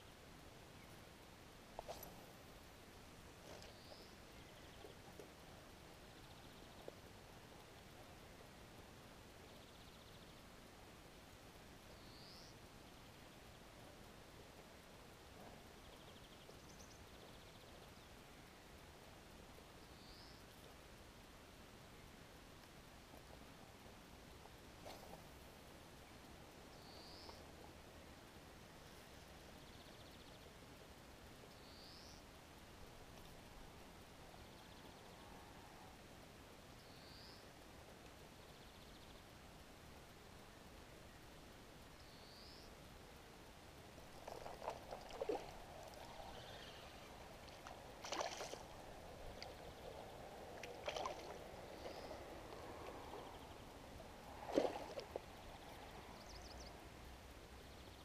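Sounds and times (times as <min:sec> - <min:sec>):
fish splashing at water surface: 0:47.5 - 0:48.8, 0:50.6 - 0:51.4.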